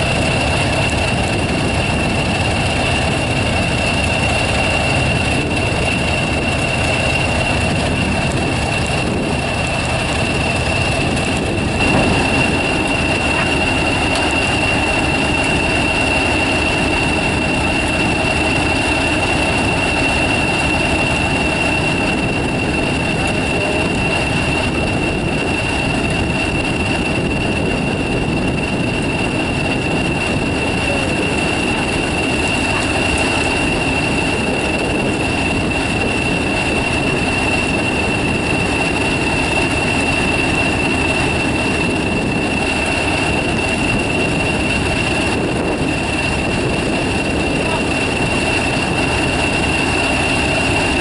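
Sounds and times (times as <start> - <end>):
diesel engine idling: 0.0 - 26.0.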